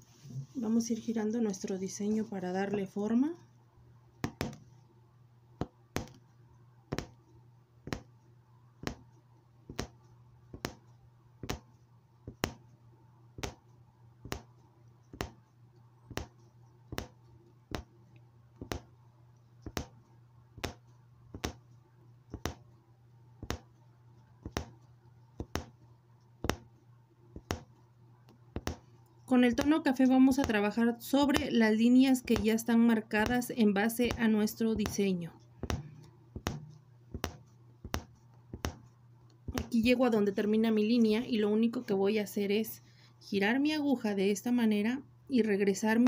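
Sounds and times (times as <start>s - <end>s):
low steady hum: 0.0s - 46.0s
punch needle clicking through fabric: 4.2s - 4.8s, 5.6s - 6.3s, 6.9s - 8.2s, 8.8s - 12.8s, 13.4s - 18.0s, 18.6s - 19.0s, 19.6s - 22.7s, 23.4s - 26.8s, 27.4s - 39.9s.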